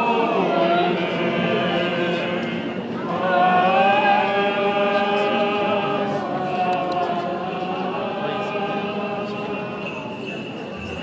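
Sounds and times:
liturgical chanting: 0.0 - 11.0.

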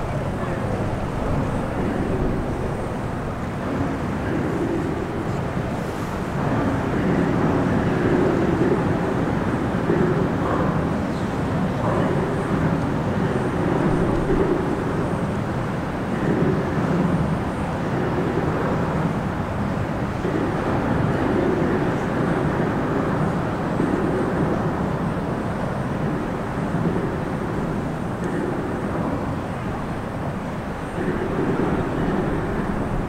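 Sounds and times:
highway traffic rushing: 11.6 - 33.0.

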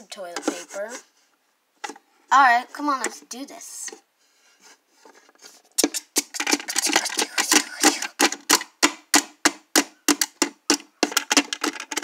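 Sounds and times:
faint plastic rustling: 0.0 - 8.2
plastic toys clattering: 5.1 - 8.8, 10.1 - 12.0.

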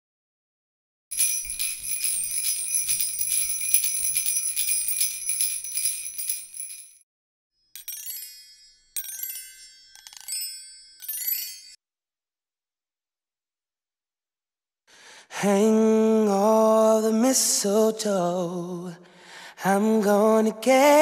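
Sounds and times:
sleigh bells jingling: 1.1 - 7.0, 7.8 - 11.8.

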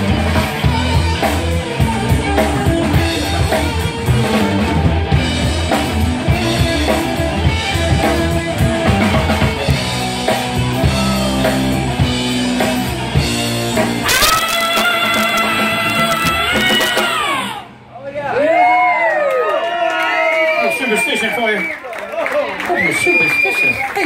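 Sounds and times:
rock band playing: 0.0 - 17.9.

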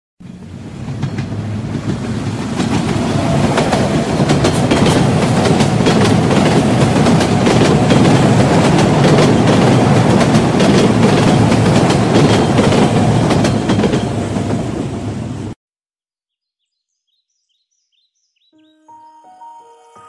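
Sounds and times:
train wheels clattering on rails: 0.2 - 15.0.

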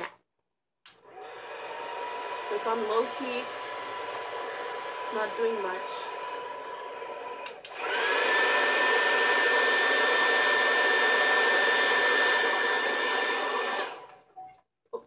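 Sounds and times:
hair dryer whining: 0.9 - 14.3
hair dryer switch click: 7.4 - 8.0, 13.6 - 14.2.

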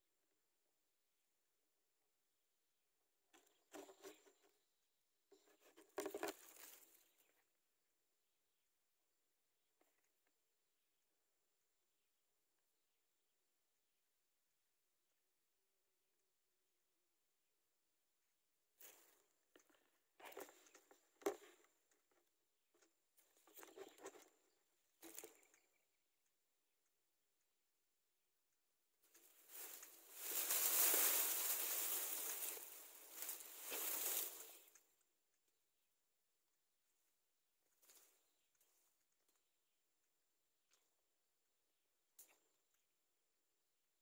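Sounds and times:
chicks rustling in grass nest: 29.2 - 34.7.

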